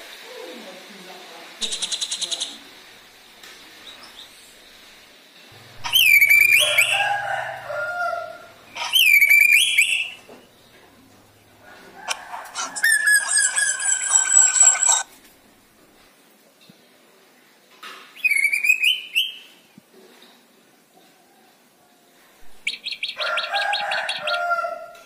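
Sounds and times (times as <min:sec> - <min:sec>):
bird chattering notes: 0:01.6 - 0:02.6, 0:05.6 - 0:15.1
bird whistled phrases: 0:05.8 - 0:07.3, 0:08.2 - 0:10.3, 0:12.6 - 0:15.0, 0:18.2 - 0:19.5.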